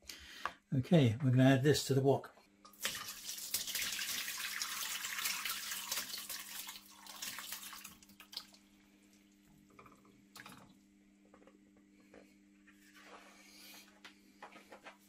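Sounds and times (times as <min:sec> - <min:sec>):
liquid pouring into metal wok: 0:02.8 - 0:08.6
faint steady hum: 0:05.4 - 0:15.0.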